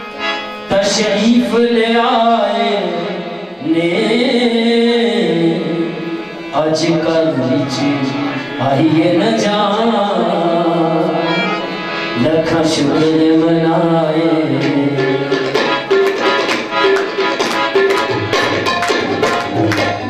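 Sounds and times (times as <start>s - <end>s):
harmonium: 0.0s - 20.0s
man singing: 0.7s - 15.7s
tabla strokes: 15.0s - 20.0s.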